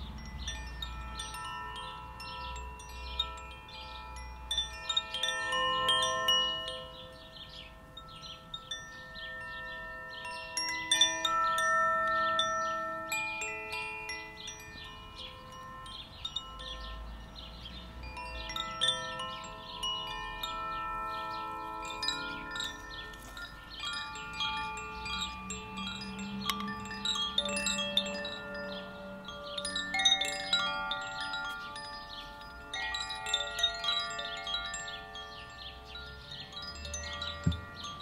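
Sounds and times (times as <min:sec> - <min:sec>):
wind chimes tinkling: 0:00.0 - 0:38.0
low tone: 0:14.0 - 0:34.3.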